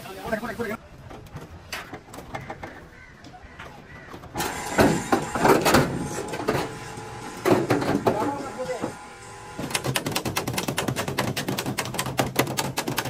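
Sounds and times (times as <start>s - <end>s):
knocks and clatter: 9.6s - 13.0s.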